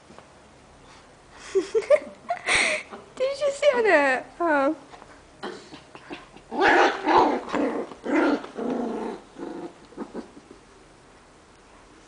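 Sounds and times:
puppies growling: 5.4 - 10.7.

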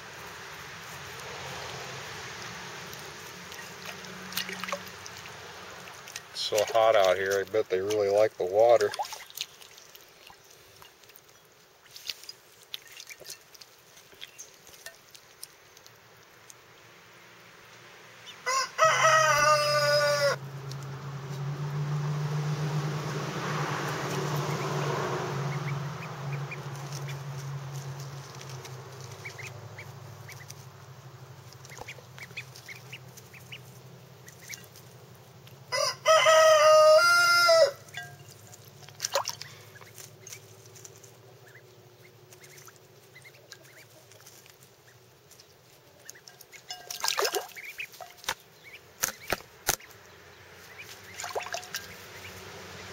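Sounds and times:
rooster crowing: 18.4 - 20.4, 35.7 - 38.1.

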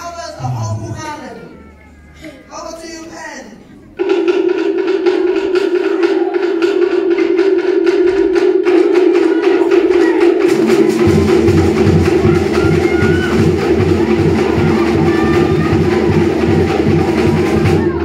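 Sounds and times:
fast rhythmic percussion: 3.9 - 18.0
deep drum beat: 4.0 - 18.0.

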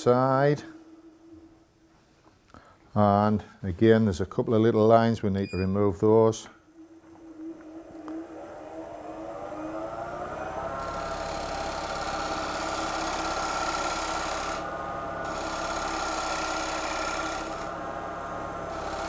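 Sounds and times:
lathe humming: 6.7 - 19.0
gouge cutting spinning wood: 8.2 - 19.0.

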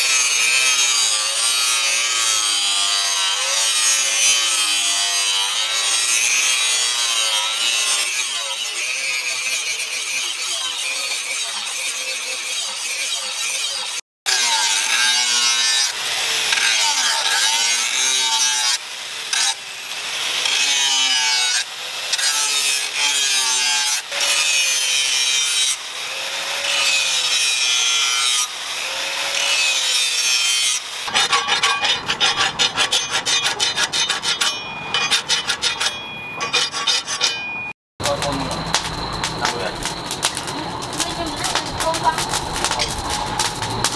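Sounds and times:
angle grinder grinding steel: 0.0 - 43.9
hand file strokes on steel: 29.4 - 37.5.

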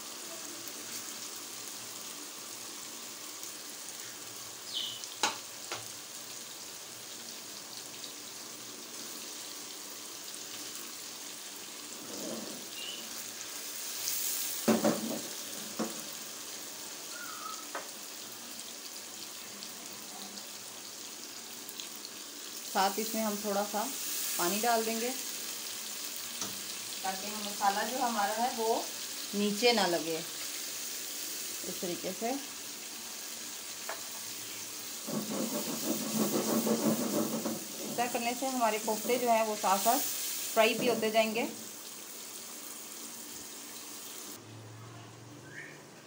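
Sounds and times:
meatballs sizzling in a wok: 0.0 - 44.4
sharp knocks in pan: 5.2 - 5.9, 14.6 - 16.0, 35.0 - 38.2.

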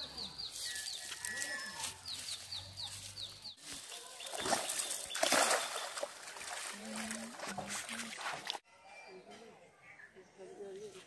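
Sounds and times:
bird chirping: 0.0 - 6.1
net splashing on water: 4.2 - 8.5.

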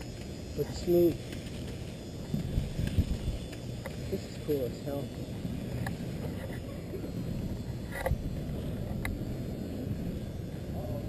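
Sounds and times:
sharp clicks: 1.2 - 4.0.

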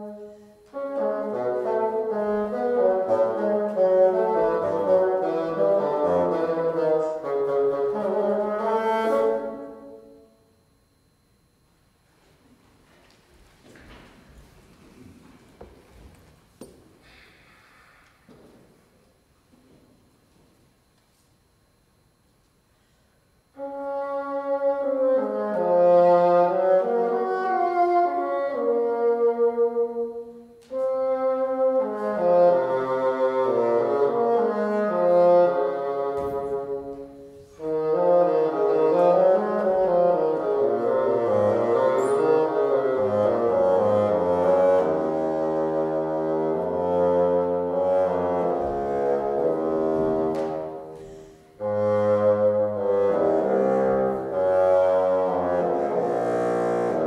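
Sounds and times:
solo bassoon melody: 0.0 - 10.6, 23.5 - 57.0.

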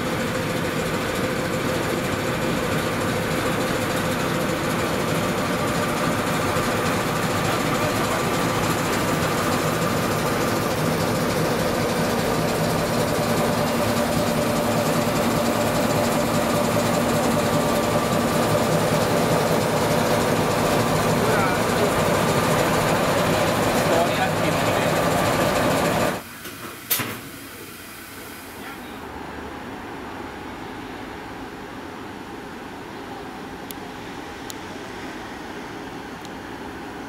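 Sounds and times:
locomotive machinery hum: 0.0 - 37.0.

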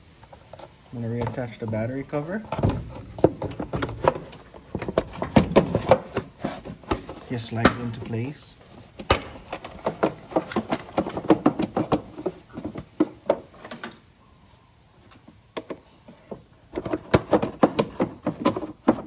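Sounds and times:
plastic cover clicking and knocking: 2.5 - 6.3, 9.0 - 13.4, 15.5 - 19.0.

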